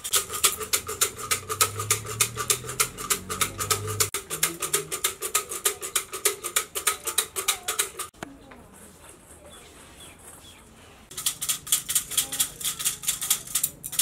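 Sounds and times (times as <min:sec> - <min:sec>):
fortune sticks rattling in cylinder: 0:00.0 - 0:08.2, 0:11.1 - 0:14.0.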